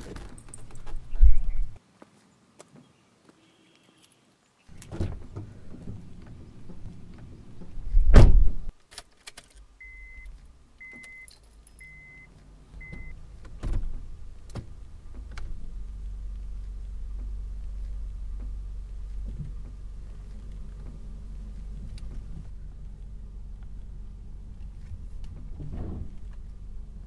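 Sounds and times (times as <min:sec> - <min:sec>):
car door shutting: 0:04.7 - 0:08.7, 0:12.8 - 0:15.8, 0:24.9 - 0:26.4
car engine starting and running: 0:04.7 - 0:08.7, 0:09.7 - 0:27.0
dashboard warning chime beeps: 0:09.8 - 0:13.2.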